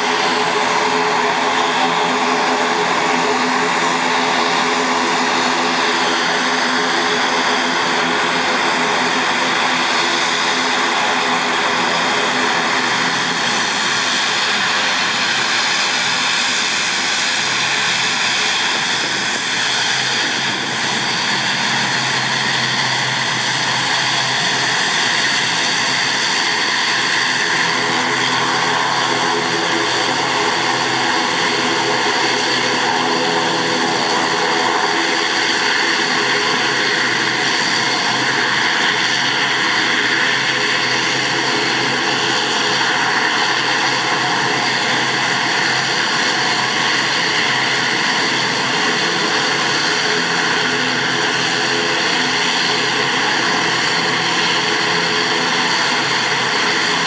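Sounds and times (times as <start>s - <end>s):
high turbine whine: 0.0s - 57.0s
propeller drone: 0.0s - 57.0s.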